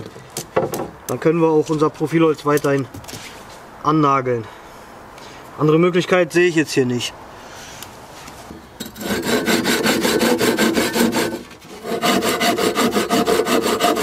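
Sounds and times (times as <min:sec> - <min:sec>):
hand saw cutting wood: 0:08.8 - 0:14.0.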